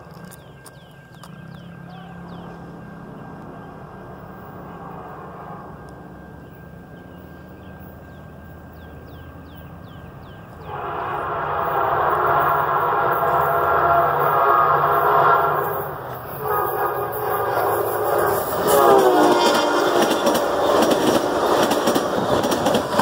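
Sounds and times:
locomotive rumble: 0:00.0 - 0:23.0
locomotive horn: 0:01.9 - 0:06.3, 0:10.5 - 0:23.0.

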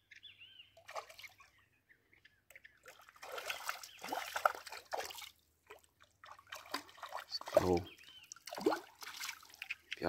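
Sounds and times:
fish splashing in water: 0:02.8 - 0:09.8.

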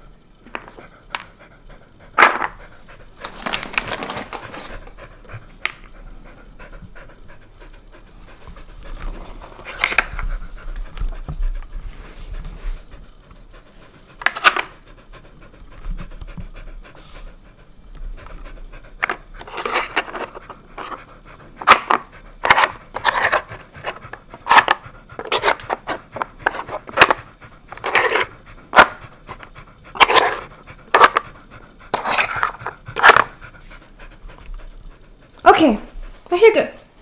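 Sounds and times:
dog panting: 0:00.5 - 0:37.0.

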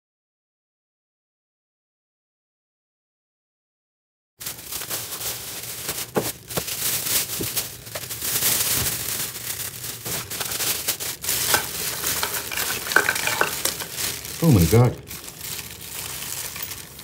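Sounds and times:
plastic bags rustling and crinkling: 0:04.4 - 0:17.0.

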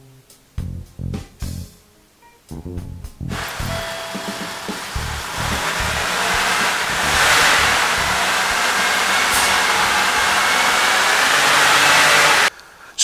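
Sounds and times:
car engine running rough: 0:03.3 - 0:12.5.

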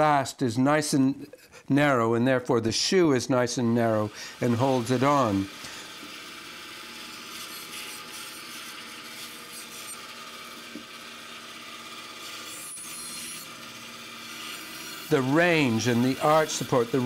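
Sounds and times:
bandsaw cutting wood: 0:03.5 - 0:17.0.

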